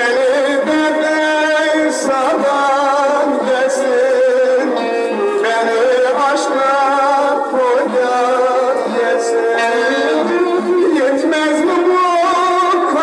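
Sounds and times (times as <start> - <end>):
folk music with sliding melody: 0.0 - 13.0.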